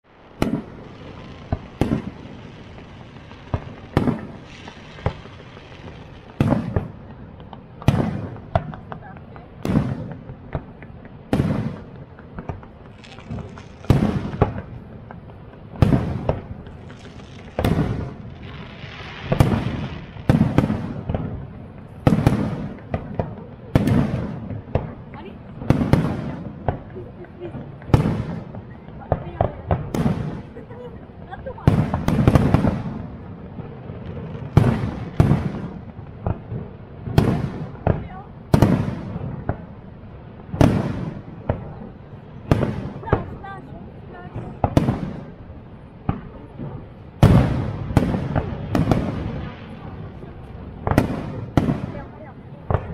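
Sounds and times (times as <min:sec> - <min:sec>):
fireworks hiss: 0:00.1 - 0:08.5, 0:09.6 - 0:23.2
fireworks booming: 0:00.1 - 0:52.9
sharp fireworks pops: 0:00.1 - 0:52.9.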